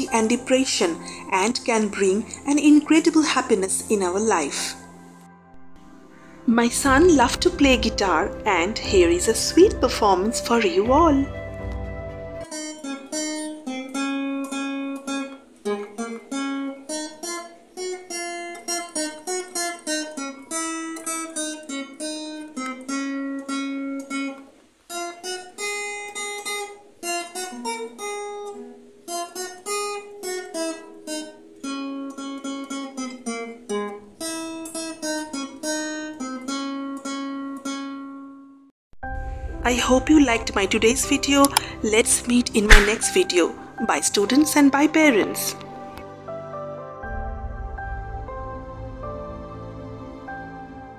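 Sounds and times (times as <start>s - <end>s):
acoustic guitar picked melody: 0.0s - 38.7s.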